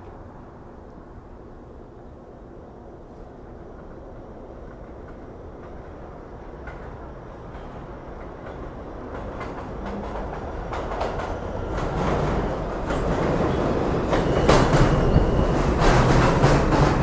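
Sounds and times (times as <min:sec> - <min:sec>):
low train hum: 0:00.0 - 0:17.0
train wheels clicking over rail joints: 0:04.6 - 0:17.0.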